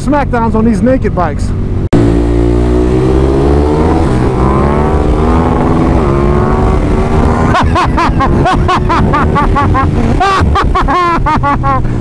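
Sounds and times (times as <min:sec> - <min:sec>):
motorcycle engine at high revs: 0:02.0 - 0:11.4.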